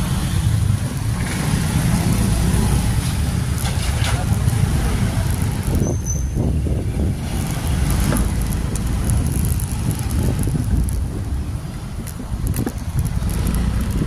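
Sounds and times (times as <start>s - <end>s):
road and vehicle noise: 0.0s - 14.0s
wind rumble on microphone: 0.0s - 14.0s
faint high squeak: 5.8s - 6.4s.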